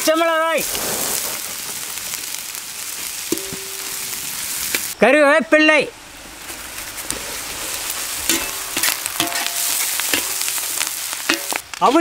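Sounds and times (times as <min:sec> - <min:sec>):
onions sizzling in oil: 0:00.0 - 0:12.0
metal ladle scraping a pan: 0:07.0 - 0:11.6.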